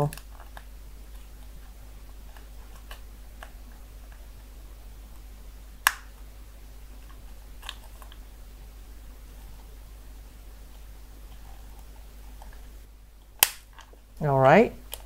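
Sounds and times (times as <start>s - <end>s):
plastic clip snapping: 13.4s - 13.9s.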